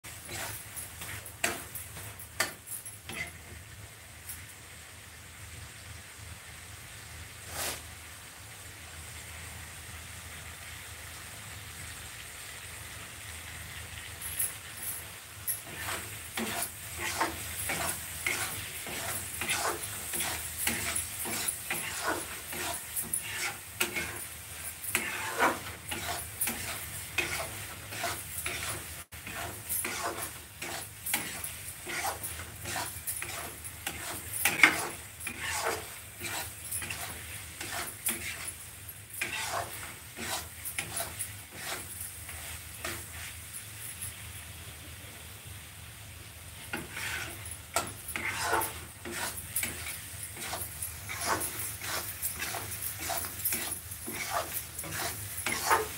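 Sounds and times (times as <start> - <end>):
frying sizzle: 0.0 - 55.9
spatula scraping a pan: 0.1 - 3.6, 7.5 - 7.9, 14.5 - 43.7, 46.6 - 55.9.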